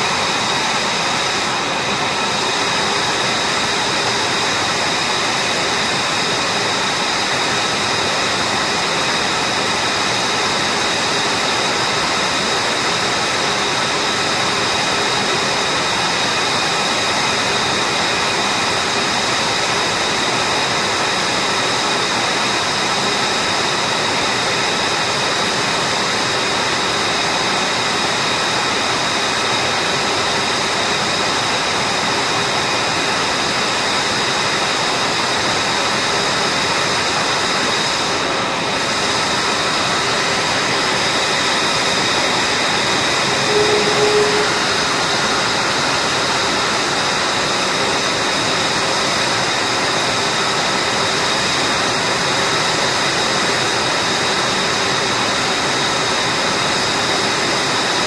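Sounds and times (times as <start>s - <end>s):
jet engine idling roar: 0.0s - 58.0s
high whining tones: 43.2s - 46.3s.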